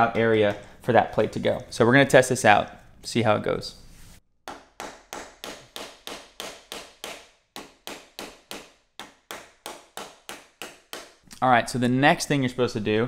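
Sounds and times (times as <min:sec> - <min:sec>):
hammer tapping metal tool: 0:00.0 - 0:00.8.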